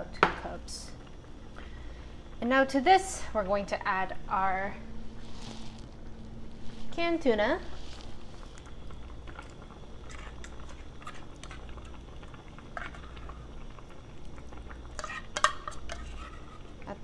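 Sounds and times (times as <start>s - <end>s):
spoon scraping a can: 9.4s - 11.6s, 12.7s - 13.3s, 14.9s - 16.7s.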